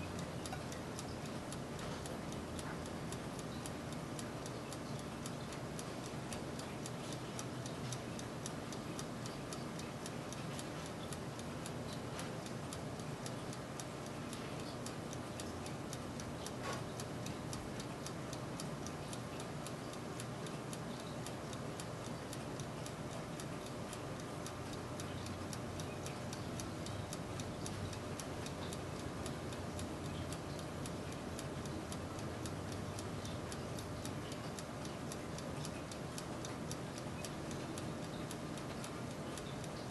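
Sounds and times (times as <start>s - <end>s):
convection oven fan humming: 0.0s - 39.9s.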